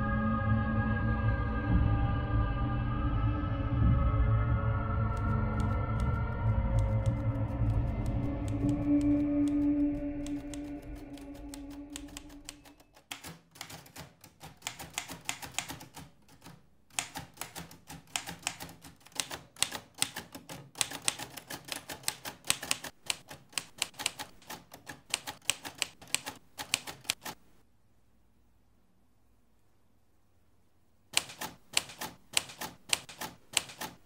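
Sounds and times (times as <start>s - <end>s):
low held musical tone: 0.0s - 13.0s
typewriter key strikes: 5.6s - 27.4s, 31.2s - 34.0s.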